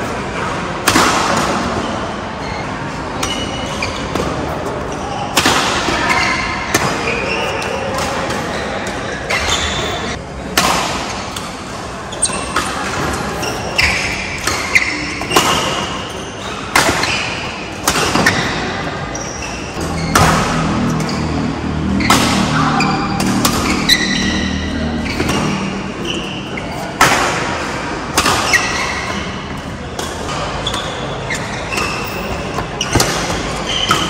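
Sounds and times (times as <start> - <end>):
shoes squeaking on court floor: 1.9 - 5.3, 6.0 - 10.2, 12.1 - 26.9, 28.4 - 34.0
racket striking shuttlecock: 19.8 - 21.2, 22.0 - 26.4, 27.0 - 31.0.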